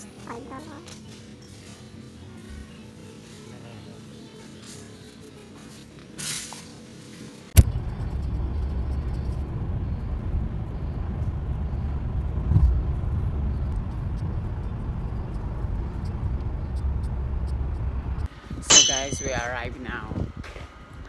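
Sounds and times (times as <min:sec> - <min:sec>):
car interior road rumble: 0:07.6 - 0:18.3.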